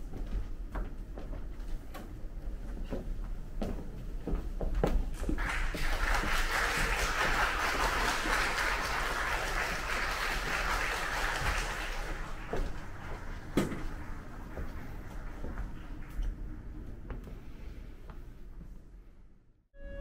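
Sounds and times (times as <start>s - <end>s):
audience applauding: 5.3s - 16.8s.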